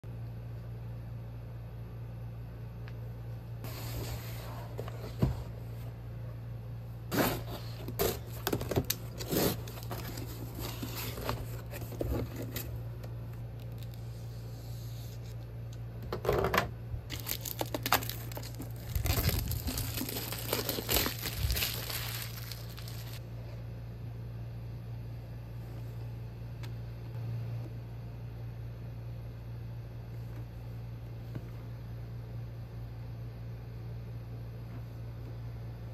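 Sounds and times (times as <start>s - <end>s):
low hum: 0.1s - 35.9s
plastic shrink-wrap crinkling and tearing: 7.9s - 11.7s, 17.1s - 23.2s.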